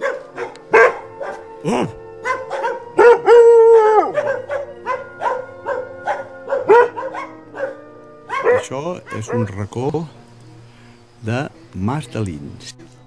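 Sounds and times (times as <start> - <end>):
dog barking: 0.0 - 1.5, 2.2 - 9.7
dog howling: 0.0 - 9.7
background music: 0.0 - 13.0.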